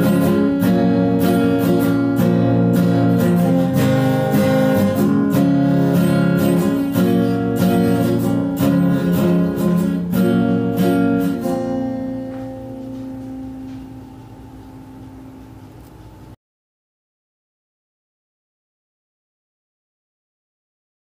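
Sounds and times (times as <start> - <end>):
acoustic guitar strumming chords: 0.0 - 15.8.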